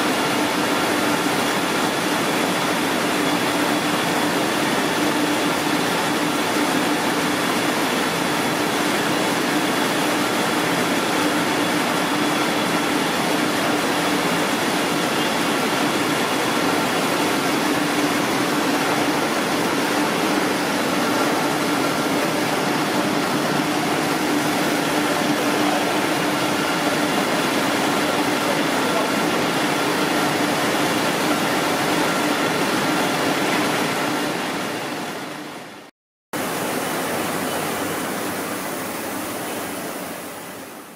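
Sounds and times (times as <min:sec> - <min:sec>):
high machine whine: 0:00.0 - 0:34.9.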